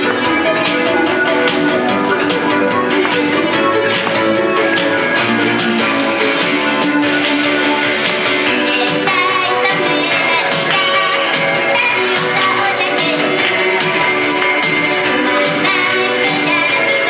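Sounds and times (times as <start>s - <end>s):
ticking beat: 0.0s - 15.0s
upbeat pop backing track: 0.0s - 17.0s
woman singing: 8.4s - 17.0s.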